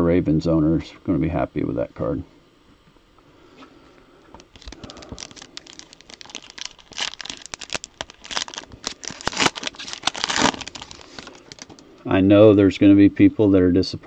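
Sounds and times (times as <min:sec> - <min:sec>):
foil wrapper crinkling and tearing: 0:04.4 - 0:11.8.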